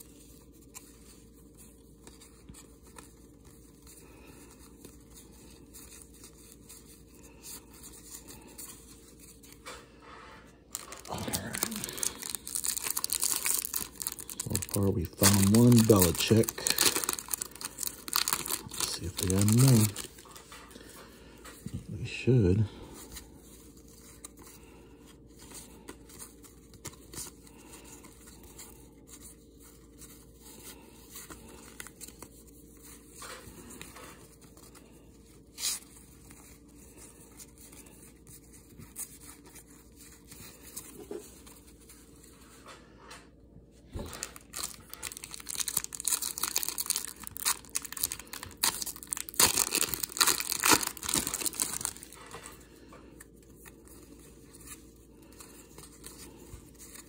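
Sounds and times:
wrapper crinkling and tearing: 0:10.7 - 0:21.0, 0:44.0 - 0:57.0.

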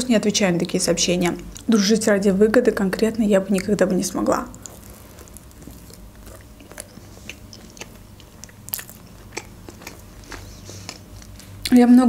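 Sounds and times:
chewing crunches: 0:03.6 - 0:11.7
wet mouth clicks: 0:04.5 - 0:11.4
biting into a bun: 0:04.5 - 0:11.6.

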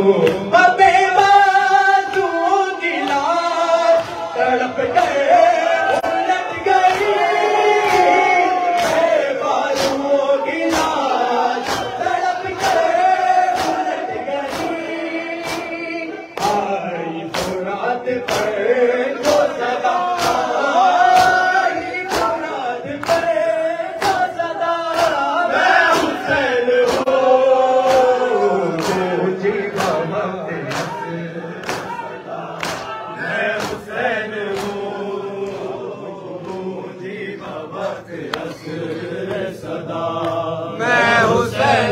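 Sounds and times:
crowd of men singing in unison: 0:00.0 - 0:41.9
men chanting through microphones: 0:00.0 - 0:41.9
hands beating on chests: 0:10.7 - 0:14.8.

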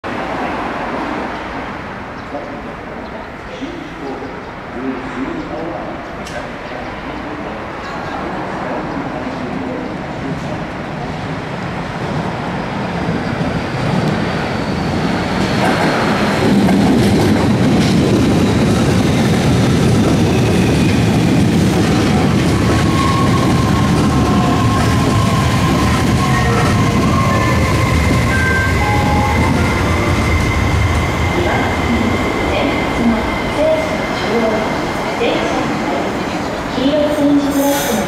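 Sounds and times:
train wheels clacking over rails: 0:13.0 - 0:36.4.

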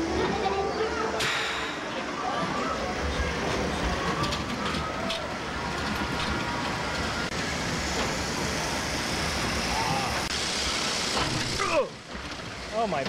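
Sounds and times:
ride vehicle rumbling on track: 0:00.0 - 0:13.0.

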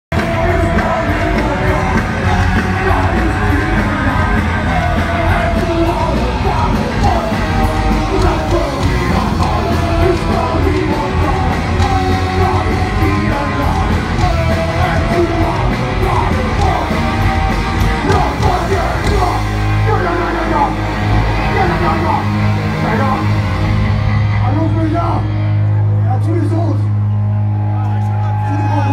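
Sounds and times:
shouted singing: 0:00.1 - 0:22.4
punk rock band playing: 0:00.1 - 0:28.9.

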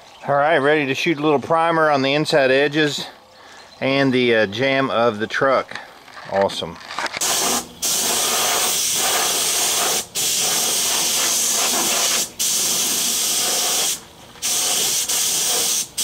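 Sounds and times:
spray gun hissing: 0:07.2 - 0:16.0.

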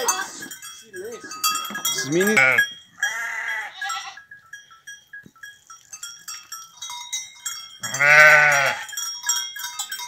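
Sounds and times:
livestock neck bells clinking: 0:00.0 - 0:10.0
goat bleating: 0:02.2 - 0:04.2, 0:07.8 - 0:08.9.

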